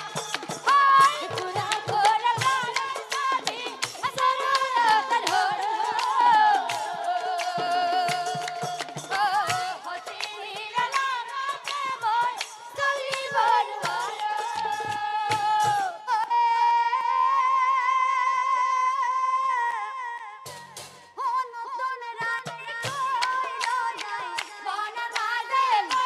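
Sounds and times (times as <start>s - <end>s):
woman singing devotional song: 0.0s - 26.0s
drum strikes: 20.5s - 21.2s.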